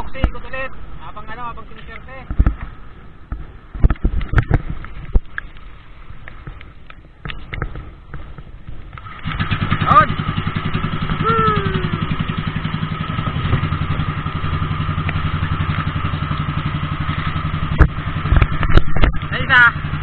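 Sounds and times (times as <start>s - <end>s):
boat engine puttering: 6.2s - 20.0s
person calling out: 11.2s - 12.2s.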